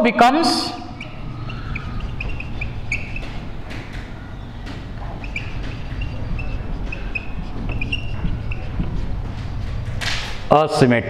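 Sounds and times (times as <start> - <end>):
marker squeaking on whiteboard: 0.5 - 10.5.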